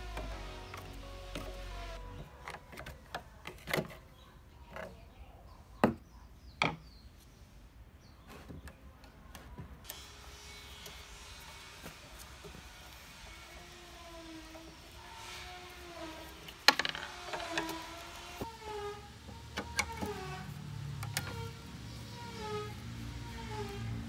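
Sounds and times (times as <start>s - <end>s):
rusted bolts squeaking: 14.2s - 24.0s.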